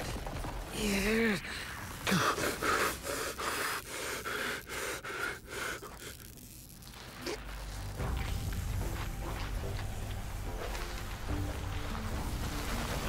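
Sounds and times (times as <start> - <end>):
person gasping and panting: 0.8 - 6.3.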